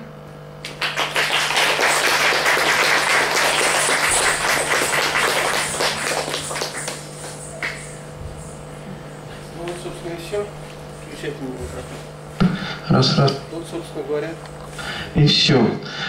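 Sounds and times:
audience applauding: 0.6 - 8.1.

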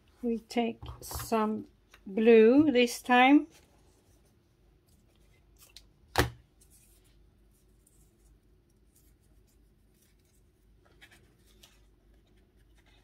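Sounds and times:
paper pages rustling: 6.5 - 13.0.

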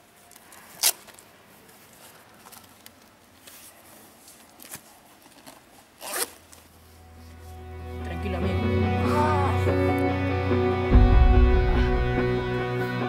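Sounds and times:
handling of clothing and gear: 0.0 - 8.0
zipper pulled open: 3.7 - 6.8.

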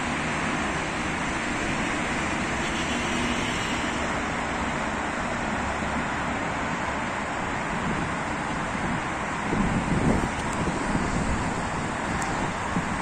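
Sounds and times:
road traffic hum: 0.0 - 13.0.

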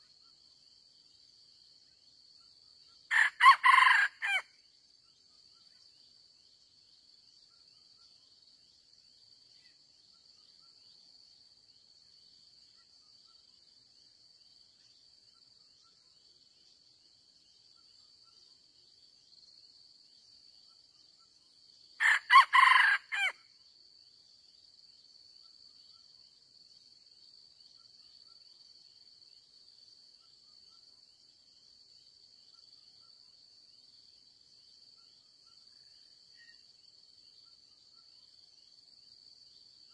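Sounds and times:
rooster crowing: 3.1 - 4.5, 22.0 - 23.4.

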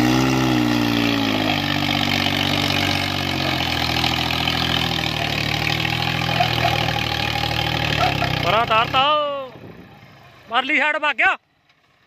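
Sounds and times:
tractor diesel engine labouring: 0.0 - 12.0.

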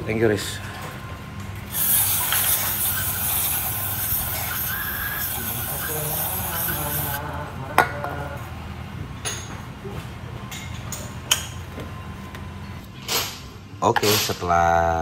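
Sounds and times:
aerosol spray hissing: 1.7 - 7.2.

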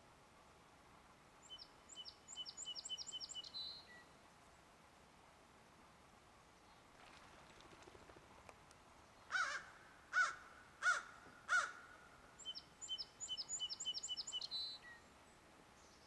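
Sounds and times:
loud bird calls: 9.3 - 14.7.

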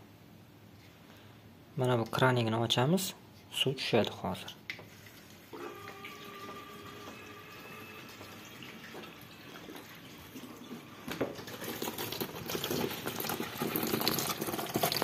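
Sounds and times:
tap water hissing: 4.7 - 15.0
water splashing into tub: 8.4 - 15.0.

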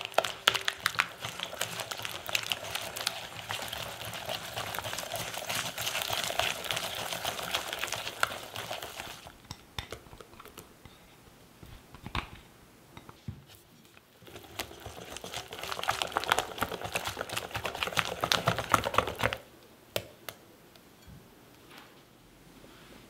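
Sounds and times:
whisk beating batter in bowl: 0.0 - 10.6, 14.2 - 19.4.

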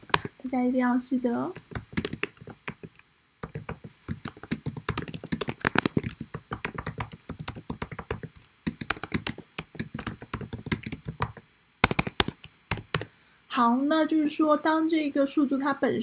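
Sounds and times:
keyboard typing: 0.0 - 0.4, 1.5 - 13.1.

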